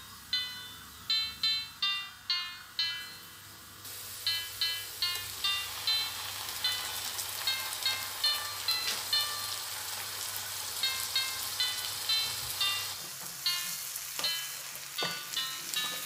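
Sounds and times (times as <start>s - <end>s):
onions sizzling in oil: 3.8s - 16.0s
tinkling background music: 10.8s - 16.0s.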